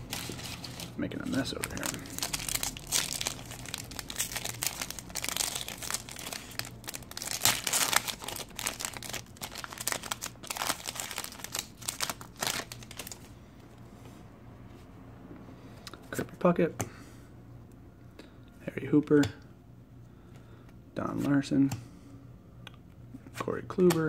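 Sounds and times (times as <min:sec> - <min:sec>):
foil wrapper tearing and crinkling: 0:00.0 - 0:13.3.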